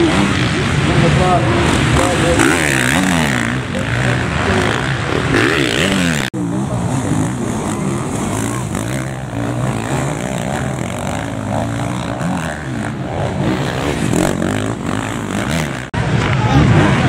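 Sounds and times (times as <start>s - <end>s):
motocross bikes revving past: 0.0s - 17.0s.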